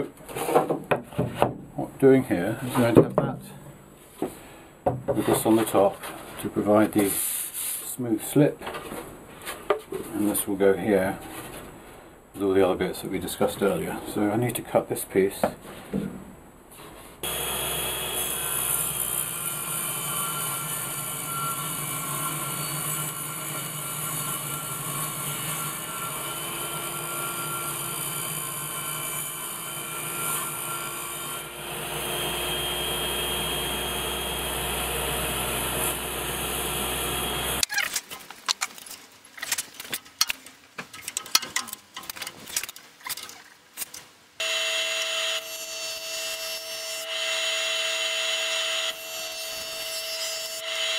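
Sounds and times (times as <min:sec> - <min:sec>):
jointer humming: 0:17.2 - 0:37.7
table saw cutting board: 0:17.2 - 0:37.7, 0:44.4 - 0:50.9.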